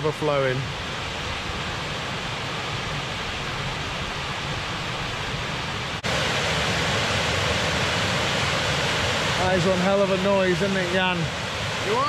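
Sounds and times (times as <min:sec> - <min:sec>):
water rushing down a shaft: 0:06.0 - 0:12.0.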